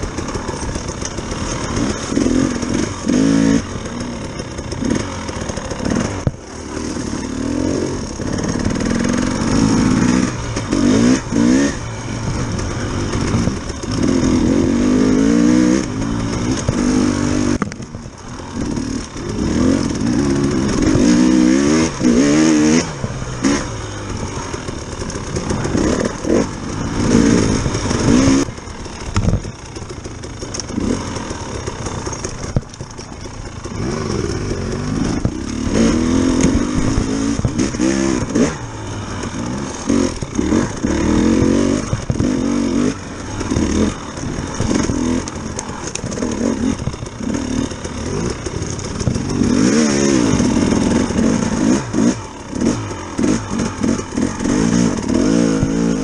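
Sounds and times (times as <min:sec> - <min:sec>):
dirt bike engine revving: 0:00.0 - 0:56.0
sharp knocks from bike: 0:29.1 - 0:29.5, 0:41.4 - 0:42.4.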